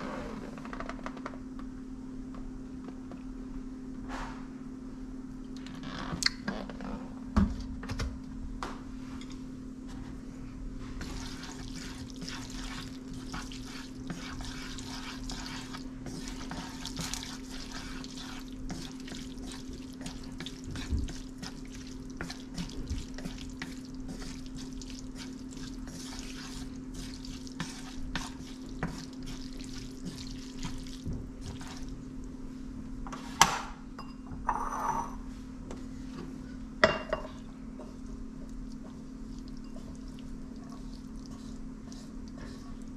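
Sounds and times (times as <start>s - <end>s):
steady low hum: 0.0s - 42.9s
dishes knocking and clinking: 33.5s - 35.2s, 36.8s - 37.4s.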